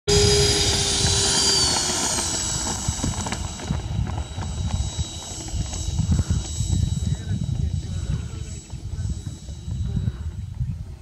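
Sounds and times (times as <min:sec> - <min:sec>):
model jet engines whining: 0:00.1 - 0:11.0
uneven low rumble: 0:00.1 - 0:11.0.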